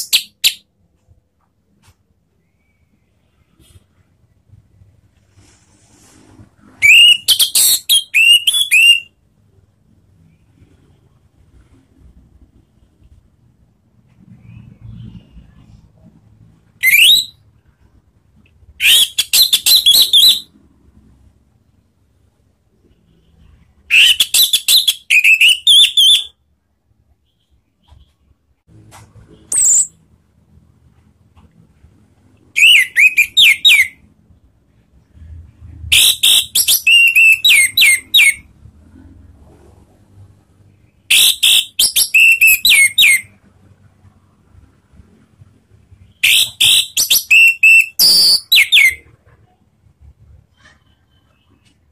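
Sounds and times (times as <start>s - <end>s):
thrush singing whistled notes: 6.8s - 9.2s, 16.8s - 17.4s, 18.8s - 20.5s, 23.9s - 26.4s, 32.6s - 34.0s, 35.9s - 38.5s, 41.1s - 43.3s, 46.0s - 49.1s.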